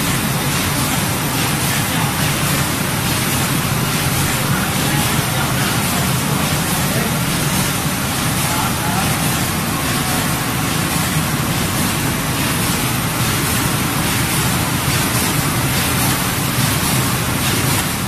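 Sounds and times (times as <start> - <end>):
machine belts and rollers running: 0.0 - 18.0.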